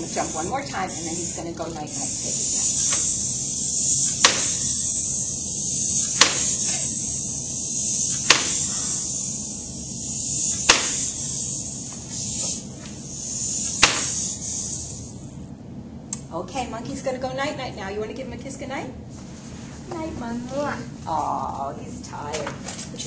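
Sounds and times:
wind-up toy spring whirring: 0:00.0 - 0:15.3.

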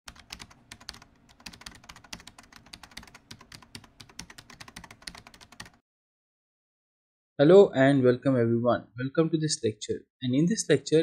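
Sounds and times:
fast keyboard typing: 0:00.1 - 0:05.8.

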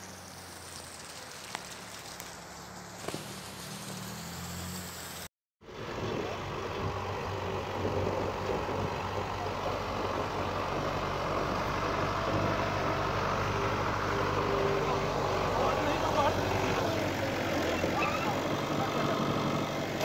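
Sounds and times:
blade pushing snow: 0:00.0 - 0:05.3
low vehicle engine hum: 0:00.0 - 0:20.0
tractor engine running: 0:00.0 - 0:20.0.

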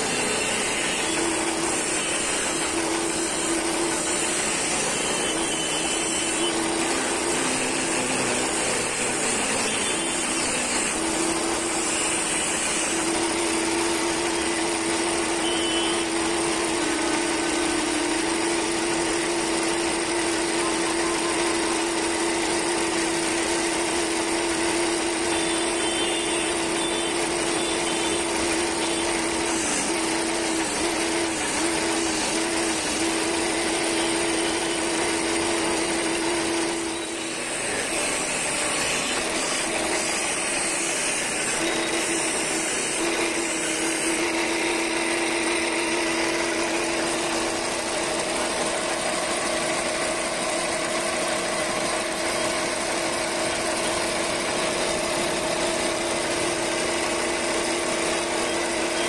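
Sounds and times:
lathe motor hum: 0:00.0 - 0:59.0.

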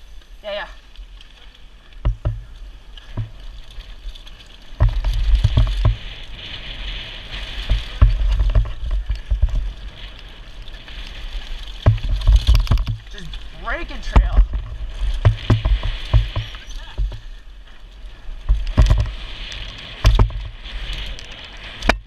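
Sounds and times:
tyres rolling on dirt: 0:00.0 - 0:22.0
wind buffeting microphone: 0:01.6 - 0:22.0
bike knocking over bumps: 0:02.0 - 0:06.7, 0:07.3 - 0:10.0, 0:10.7 - 0:17.7, 0:18.4 - 0:21.1.

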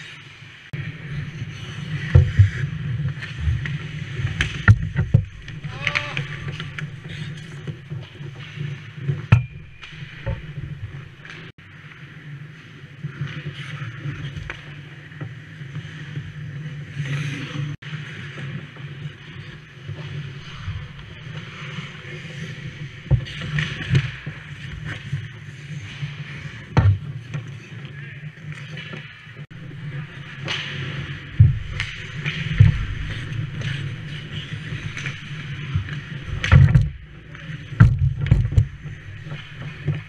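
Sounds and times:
skate blades scraping ice: 0:00.0 - 0:40.0
hockey sticks and puck clacking: 0:01.4 - 0:12.0, 0:21.0 - 0:40.0
low rumble: 0:09.2 - 0:11.5.

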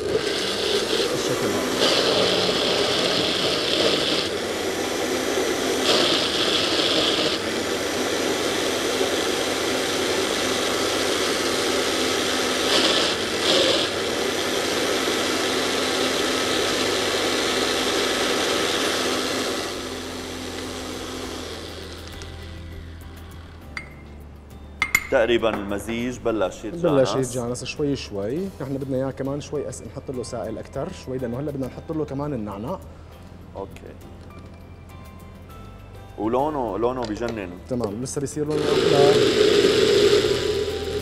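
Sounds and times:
blender motor churning mash: 0:00.0 - 0:23.6, 0:38.5 - 0:41.0.

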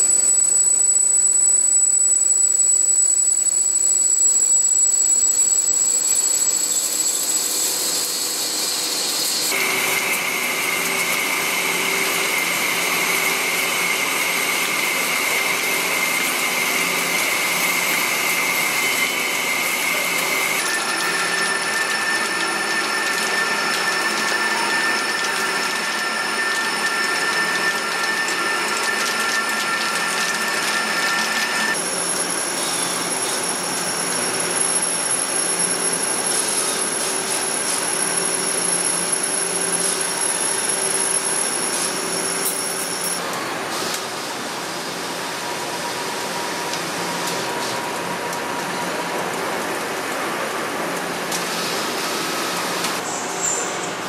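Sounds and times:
high ringing cutting tones: 0:00.0 - 0:43.2
metal machining whine: 0:00.0 - 0:54.0.

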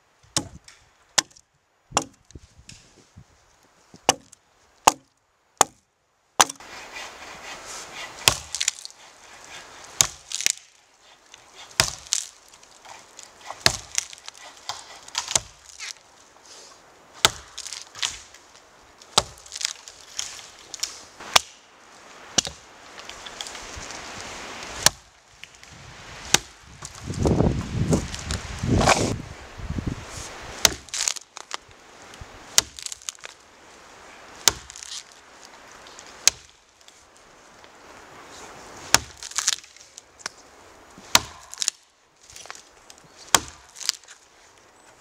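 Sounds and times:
axe chopping wood: 0:00.3 - 0:02.8, 0:04.0 - 0:05.8, 0:06.4 - 0:06.6, 0:08.2 - 0:08.9, 0:10.0 - 0:10.7, 0:11.6 - 0:16.0, 0:17.2 - 0:18.3, 0:19.1 - 0:21.6, 0:22.4 - 0:22.6, 0:24.8 - 0:25.1, 0:26.3 - 0:27.0, 0:30.6 - 0:31.2, 0:32.5 - 0:33.3, 0:34.4 - 0:35.0, 0:36.2 - 0:36.6, 0:38.9 - 0:39.8, 0:41.1 - 0:41.8, 0:43.3 - 0:44.0
footsteps crunching through snow: 0:21.9 - 0:24.9, 0:25.7 - 0:29.3.

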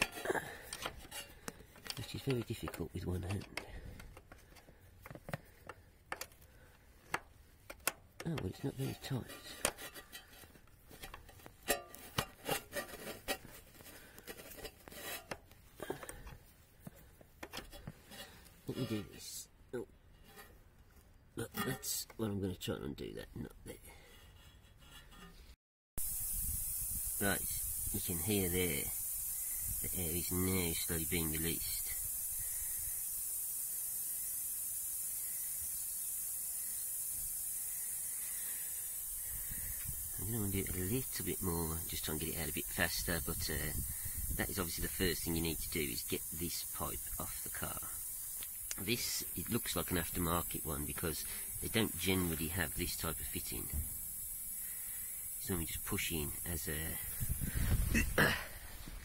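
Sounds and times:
compressed air hissing: 0:00.0 - 0:19.1, 0:26.0 - 0:59.0
spanner clicking on metal nut: 0:07.1 - 0:08.5.

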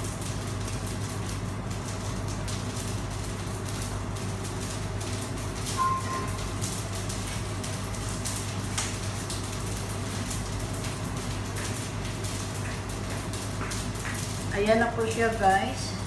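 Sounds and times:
low machine hum: 0:00.0 - 0:16.0
short high beep: 0:05.8 - 0:06.3.

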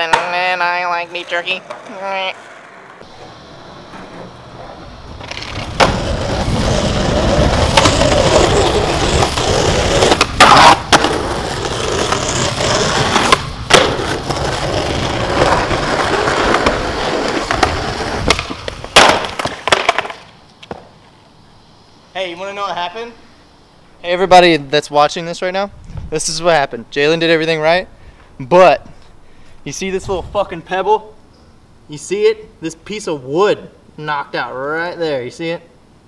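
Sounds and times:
skateboard clattering on concrete: 0:00.0 - 0:03.1, 0:03.8 - 0:20.9
skateboard clacks: 0:00.0 - 0:06.4, 0:07.0 - 0:20.9
skateboard wheels rolling on concrete: 0:00.0 - 0:31.2
rider slamming on concrete: 0:17.5 - 0:20.9.

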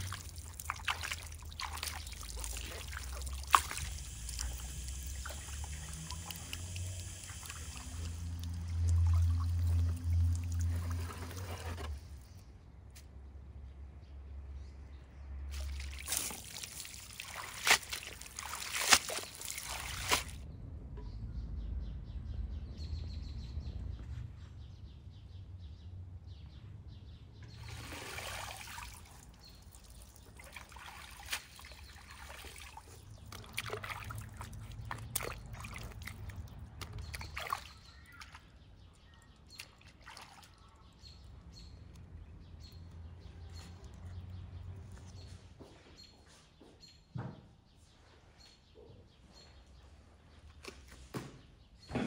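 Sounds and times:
water dripping into basin: 0:00.0 - 0:11.1, 0:15.5 - 0:20.4, 0:27.6 - 0:43.1
water splashing and sloshing: 0:00.0 - 0:12.4, 0:15.4 - 0:20.4, 0:27.4 - 0:45.6.

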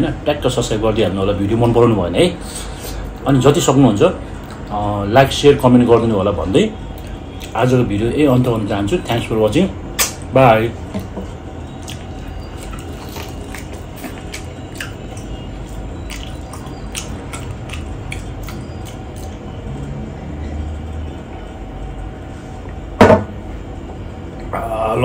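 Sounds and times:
mouth smacks and clicks: 0:10.0 - 0:10.3, 0:11.8 - 0:19.5
wet chewing: 0:10.9 - 0:19.9
loud knock: 0:23.0 - 0:23.4.

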